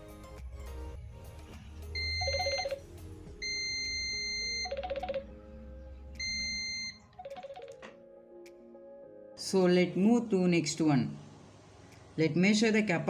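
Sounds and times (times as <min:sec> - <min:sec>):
multimeter continuity beeping: 0:02.0 - 0:02.8, 0:03.4 - 0:05.2, 0:06.2 - 0:07.8.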